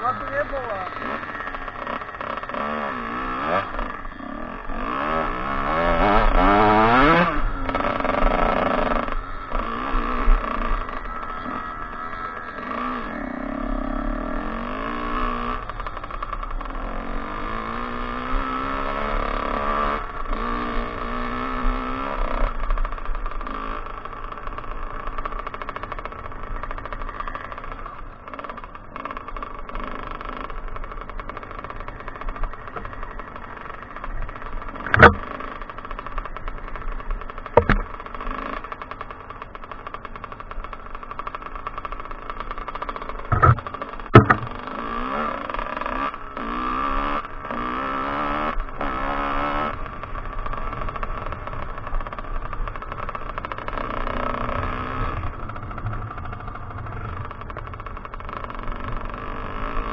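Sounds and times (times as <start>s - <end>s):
motocross engine revving: 0.0s - 59.9s.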